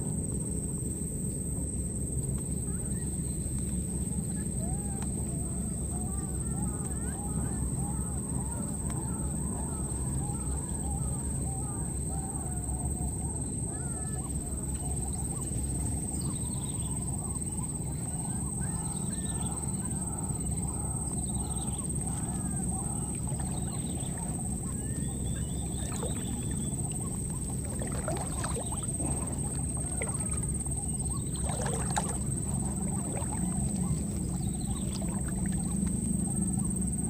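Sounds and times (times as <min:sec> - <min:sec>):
steady low rumble: 0:12.9 - 0:37.0
animal calls: 0:16.9 - 0:37.0.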